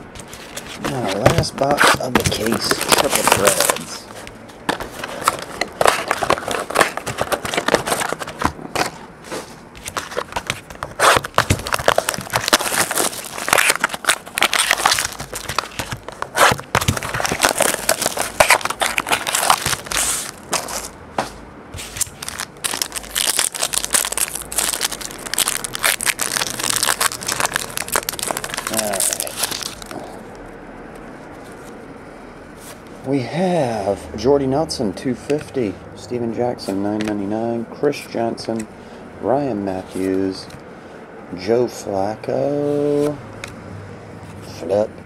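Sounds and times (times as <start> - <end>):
foil wrapper crinkling: 0.2 - 4.1, 4.8 - 8.9, 9.8 - 20.9, 21.9 - 30.0
scissors cutting plastic wrap: 0.7 - 4.0, 5.2 - 8.9, 9.9 - 20.9, 21.9 - 30.0.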